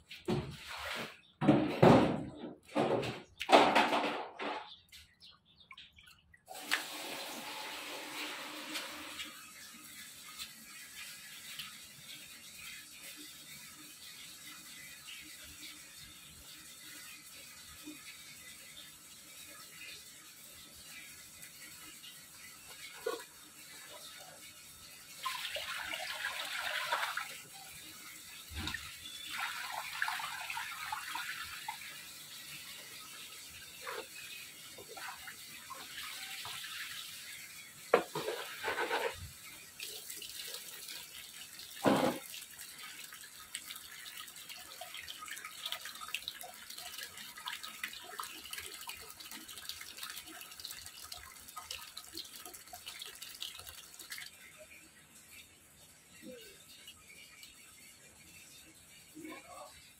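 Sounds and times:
water sloshing and splashing: 0.0 - 1.4, 38.0 - 41.0
tap water running into basin: 5.8 - 59.9.

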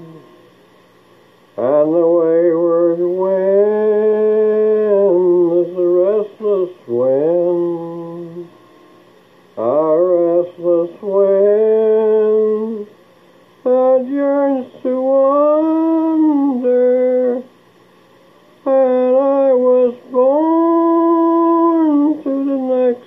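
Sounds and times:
man humming slow melody: 0.0 - 0.4, 18.6 - 23.0.

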